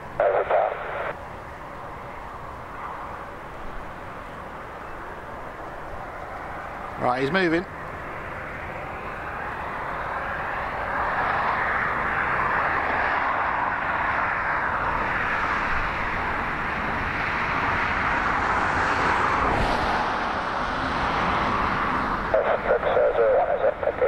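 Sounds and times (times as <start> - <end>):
jet engines roaring: 0.0 - 24.0.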